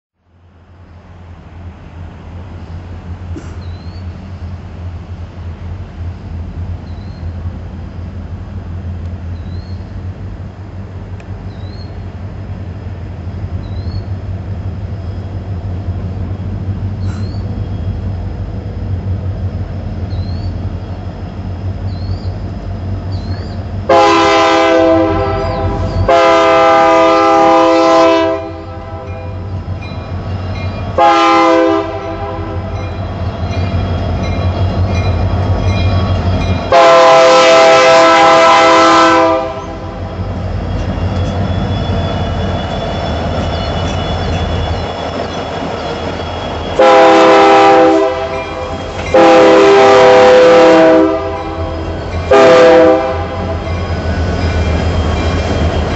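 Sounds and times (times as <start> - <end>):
diesel engines rumbling: 1.0 - 55.9
locomotive air horn blasts: 23.9 - 29.5, 31.0 - 32.8, 36.7 - 40.2, 46.8 - 53.8.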